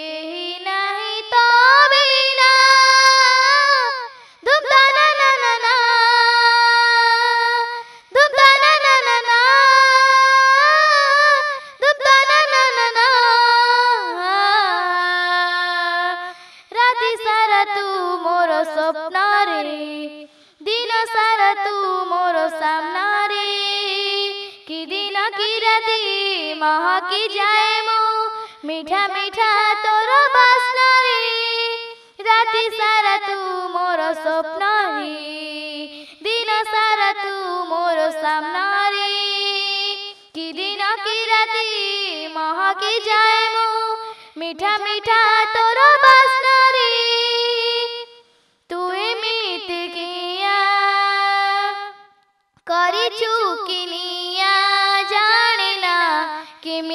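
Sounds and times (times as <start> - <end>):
girl singing unaccompanied: 0.0 - 56.9.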